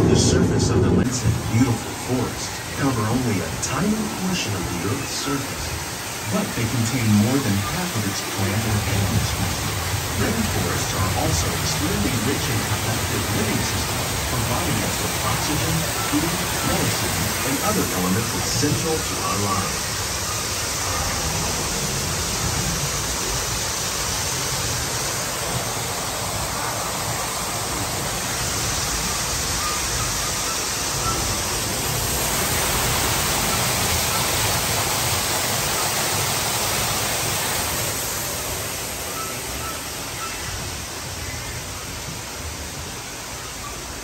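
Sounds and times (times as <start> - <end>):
water rushing: 0.0 - 44.0.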